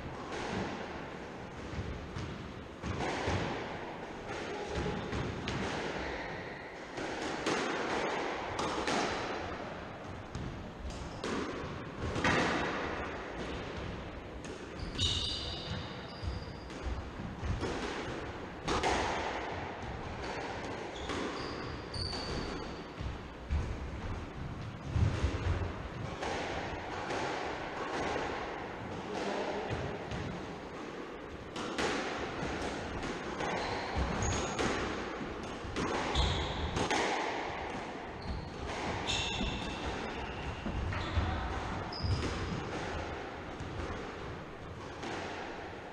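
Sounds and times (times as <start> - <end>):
squash ball knocks: 16.7 - 21.4
shoes squeaking on wooden floor: 20.9 - 22.5.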